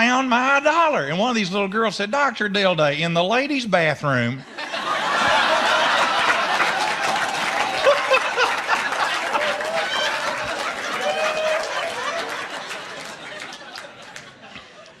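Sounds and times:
audience laughing: 4.4s - 15.0s
audience applauding: 4.8s - 14.9s.

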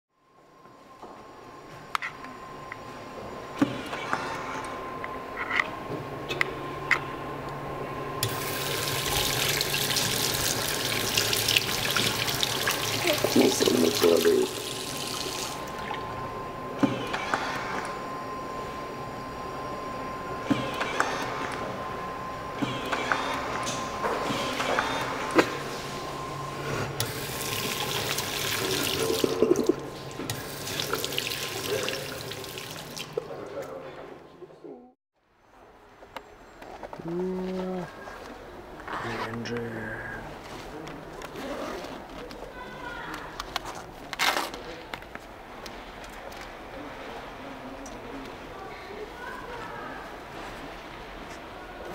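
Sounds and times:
sink tap turning on: 8.2s - 15.7s.

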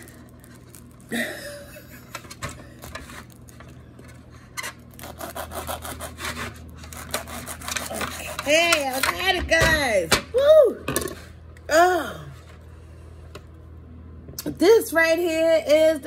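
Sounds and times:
knife sawing through husk: 5.0s - 8.7s.

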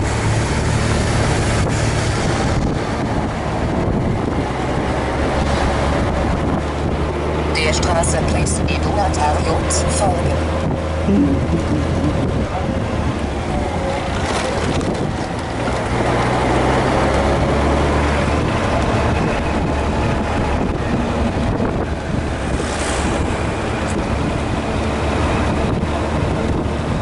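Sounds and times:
wind rushing over microphone: 0.0s - 27.0s
motorcycle engine droning: 9.3s - 15.5s.

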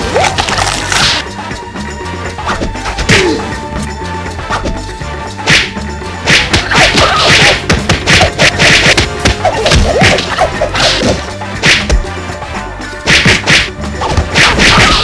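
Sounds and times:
background music: 0.0s - 15.0s
punch whacks: 5.4s - 12.1s, 13.0s - 15.0s.

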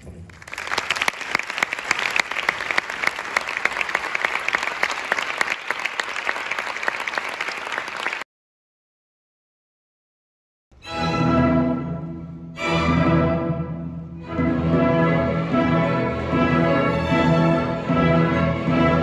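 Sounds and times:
audience applauding: 0.3s - 8.2s.

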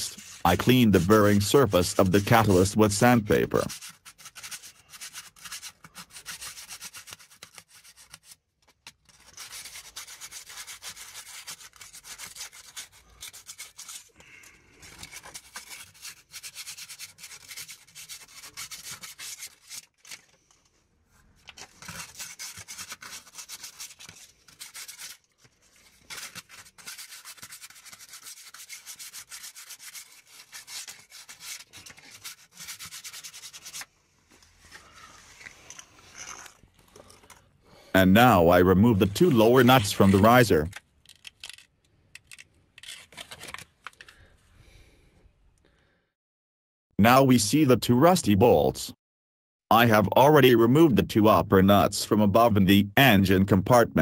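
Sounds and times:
sandpaper scratching on metal: 0.0s - 8.2s, 9.2s - 14.1s, 15.0s - 19.8s, 21.9s - 25.2s, 26.2s - 33.8s.

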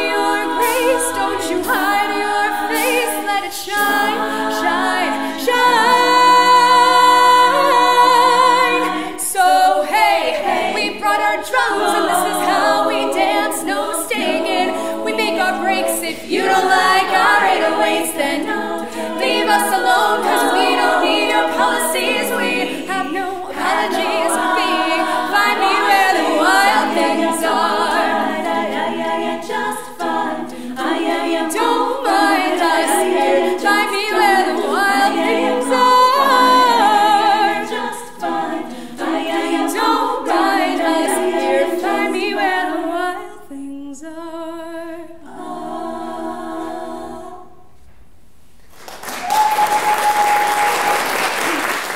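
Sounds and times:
women's a cappella singing: 0.0s - 47.8s
audience applause: 48.7s - 51.9s.

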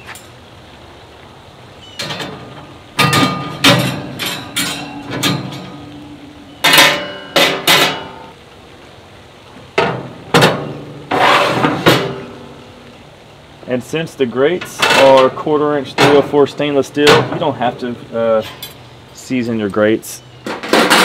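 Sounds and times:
metal grill grates clanking: 2.0s - 8.3s, 9.7s - 12.5s, 14.5s - 18.8s, 20.4s - 21.0s.

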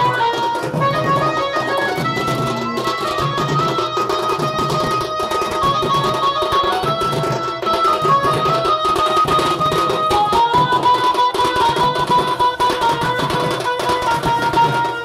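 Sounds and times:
melody of long held notes: 0.0s - 13.8s
barrel drums beaten fast: 0.0s - 15.0s.

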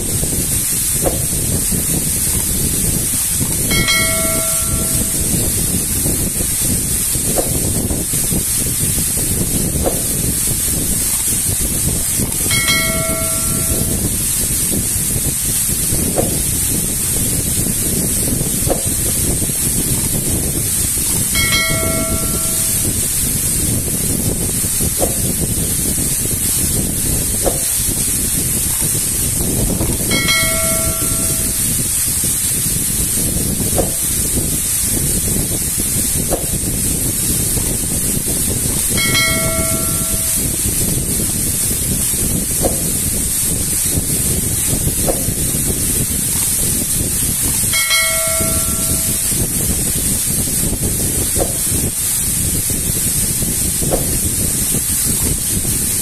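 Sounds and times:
waterfall pouring onto rocks: 0.0s - 56.0s
bell-like ding: 3.7s - 5.4s, 12.5s - 14.2s, 21.4s - 23.1s, 30.1s - 31.7s, 39.0s - 40.6s, 47.7s - 49.4s.

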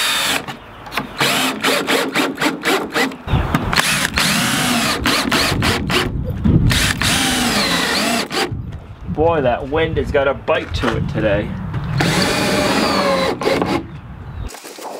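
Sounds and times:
cordless drill driving screws: 1.2s - 3.2s, 3.8s - 6.1s, 6.7s - 8.5s, 12.0s - 13.8s.

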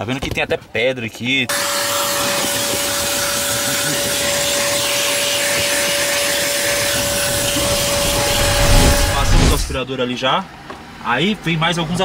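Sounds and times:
vacuum sucking with whine: 1.5s - 9.8s.

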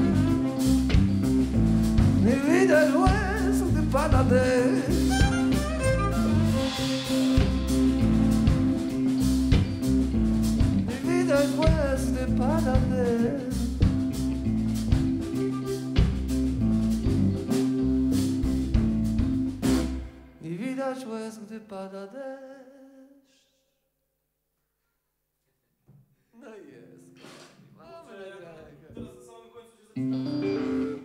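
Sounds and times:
drum kit: 0.0s - 20.2s, 27.1s - 27.8s, 30.1s - 31.0s
bass guitar: 0.0s - 20.3s, 30.0s - 31.0s
electric guitar: 0.0s - 20.3s, 30.0s - 31.0s
man singing: 2.2s - 5.8s, 10.9s - 14.0s, 20.4s - 23.6s
violin: 4.1s - 9.7s.

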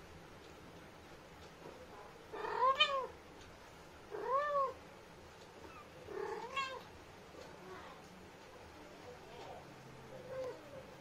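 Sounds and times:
cat meowing: 2.3s - 3.1s, 4.1s - 4.8s, 5.6s - 6.9s.

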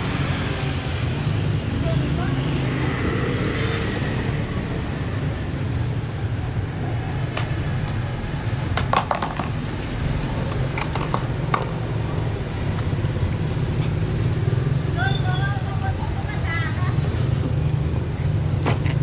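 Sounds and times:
low rumble of street noise: 0.0s - 19.0s
plastic stool scraping on tiles: 8.8s - 12.0s.

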